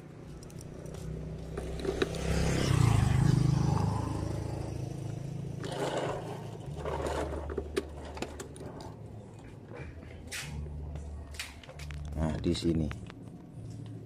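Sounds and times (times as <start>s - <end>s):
engine low rumble: 0.0s - 14.0s.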